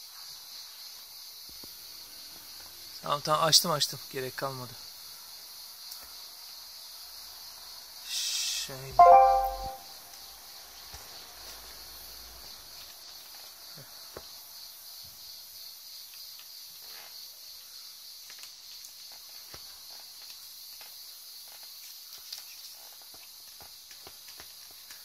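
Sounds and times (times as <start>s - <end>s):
high-pitched insect chorus: 0.2s - 8.9s.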